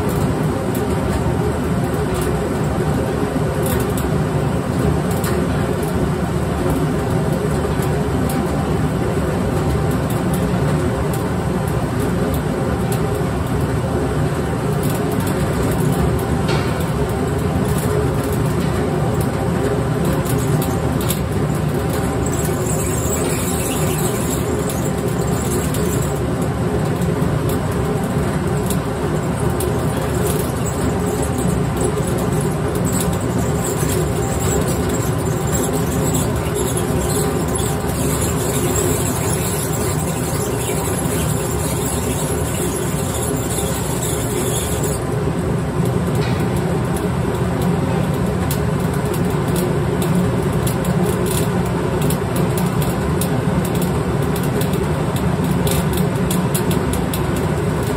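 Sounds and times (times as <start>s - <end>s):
grain mill grinding: 20.8s - 26.3s, 28.7s - 45.0s.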